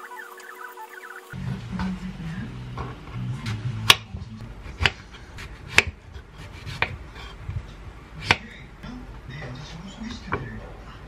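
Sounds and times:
knife slicing fruit: 3.5 - 8.6.

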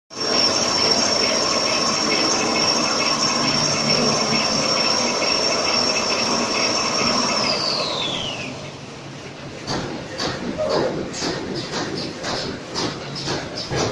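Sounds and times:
loud high-pitched whine: 0.1 - 9.1
steady mechanical noise: 0.1 - 13.9.

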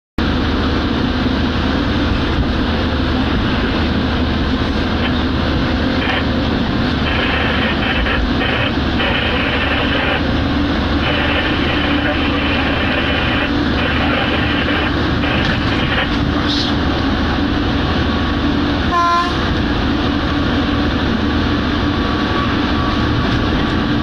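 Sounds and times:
diesel engine pulling hard: 0.2 - 24.0
traction motor whine: 5.0 - 17.7.

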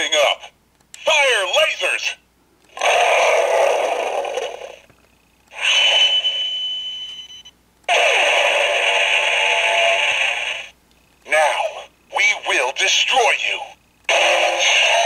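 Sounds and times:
electronic laser blasts: 7.9 - 10.7.

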